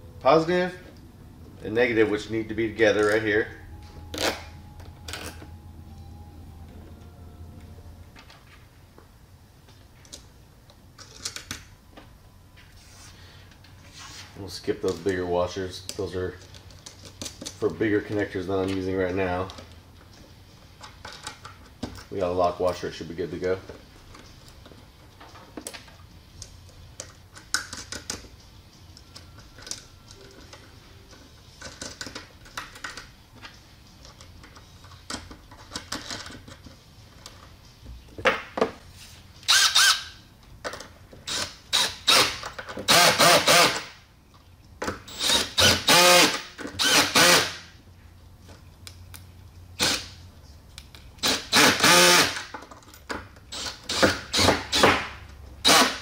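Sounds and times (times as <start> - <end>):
cordless drill spinning: 39.5 - 40.0, 41.3 - 43.8, 45.1 - 47.5, 49.8 - 50.0, 51.2 - 52.4, 55.6 - 56.0.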